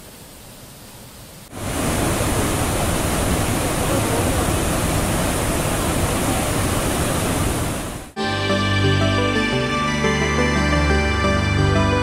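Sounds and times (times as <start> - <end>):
waterfall rushing: 1.5 - 8.2.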